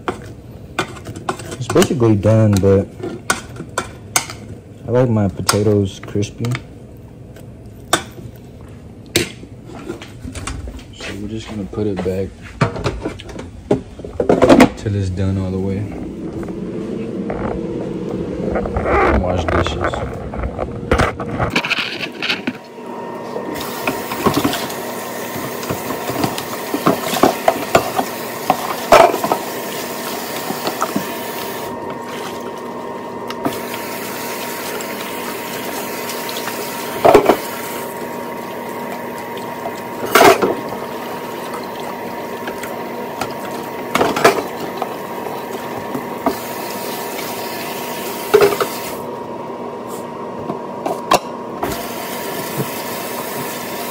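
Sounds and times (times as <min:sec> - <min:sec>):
dishes clinking and knocking: 0:12.6 - 0:14.8, 0:25.6 - 0:29.4, 0:37.0 - 0:37.4
tap water running into sink: 0:23.6 - 0:32.5, 0:33.4 - 0:49.0, 0:51.6 - 0:53.9.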